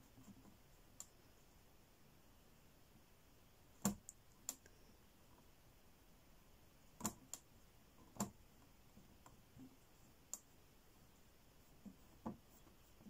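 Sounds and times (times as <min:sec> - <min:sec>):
light clicks and taps: 0:07.0 - 0:10.5.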